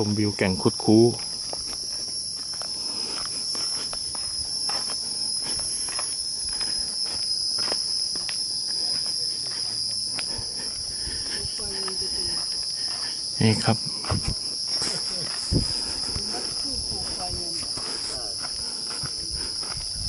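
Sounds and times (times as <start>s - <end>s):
insects chorus whining: 0.0s - 20.0s.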